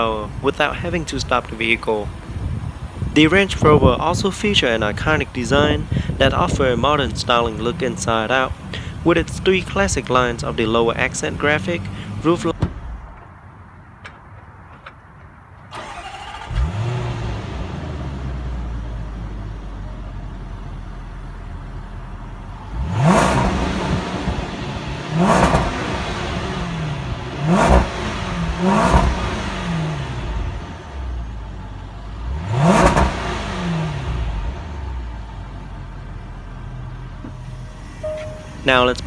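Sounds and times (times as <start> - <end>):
car engine idling: 0.0 - 39.0
car engine starting: 0.0 - 39.0
engine revving blips: 22.7 - 30.4, 32.2 - 35.0, 37.4 - 39.0.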